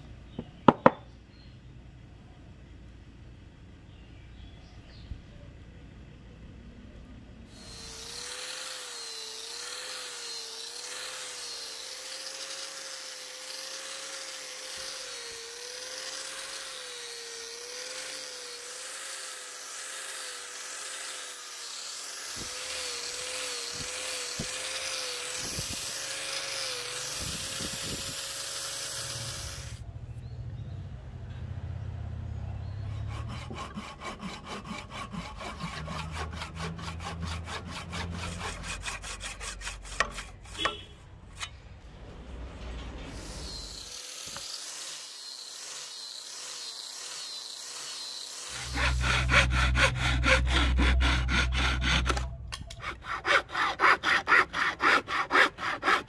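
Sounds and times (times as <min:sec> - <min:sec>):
angle grinder sanding wood: 0:07.5 - 0:29.8, 0:32.9 - 0:40.8, 0:43.1 - 0:56.0
hand saw cutting wood: 0:07.5 - 0:29.8, 0:32.9 - 0:41.6, 0:43.1 - 0:56.0.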